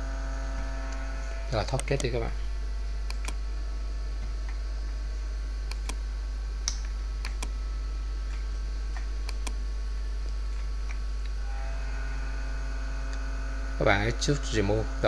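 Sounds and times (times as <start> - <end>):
low electrical hum: 0.0 - 15.0
computer mouse clicking: 3.1 - 3.4, 5.7 - 6.0, 6.7 - 7.5, 9.0 - 9.6.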